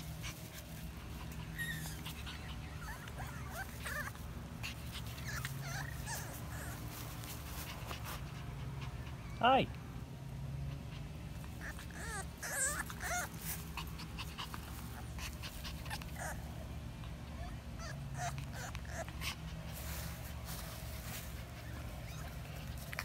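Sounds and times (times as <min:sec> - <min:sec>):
steady low hum: 0:00.0 - 0:23.0
puppy whimpering: 0:01.2 - 0:07.0, 0:11.4 - 0:19.5, 0:21.5 - 0:23.0.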